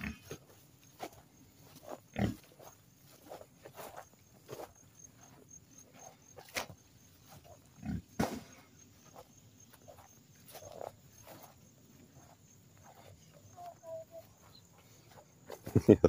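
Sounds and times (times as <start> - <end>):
pigs grunting: 0.0 - 0.6, 1.8 - 2.8, 7.4 - 8.4.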